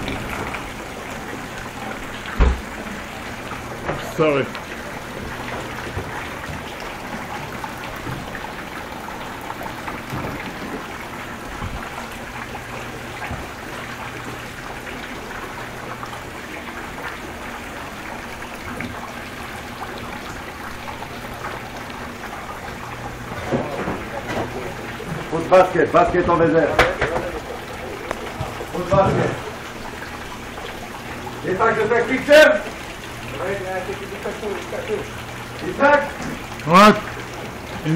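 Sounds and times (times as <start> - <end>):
water dripping from ceiling: 0.0 - 37.9.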